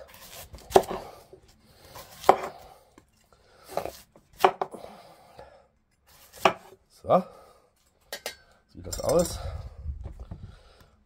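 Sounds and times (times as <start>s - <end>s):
knife chopping root vegetable: 0.0s - 1.2s, 1.9s - 2.6s, 3.7s - 4.8s, 6.1s - 6.8s.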